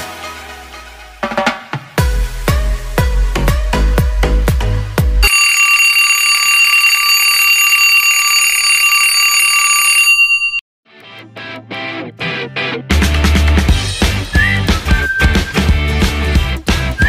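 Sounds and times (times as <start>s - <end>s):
drum-heavy electronic music: 0.0s - 5.3s, 12.9s - 17.0s
alarm clock ringing: 5.2s - 10.6s.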